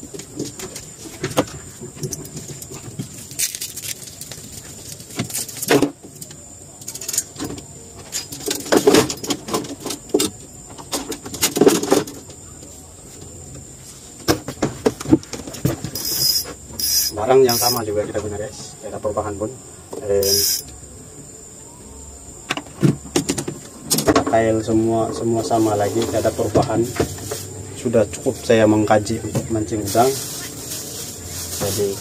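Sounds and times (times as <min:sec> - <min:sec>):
faint high whine: 0:15.8 - 0:32.0
fishing tackle clattering: 0:20.2 - 0:20.7.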